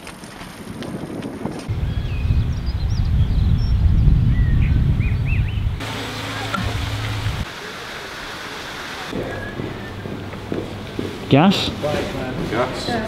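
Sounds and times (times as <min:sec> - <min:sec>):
wind buffeting microphone: 0:00.0 - 0:05.8
small birds chirping: 0:01.7 - 0:05.8
outdoor hiss: 0:05.8 - 0:13.0.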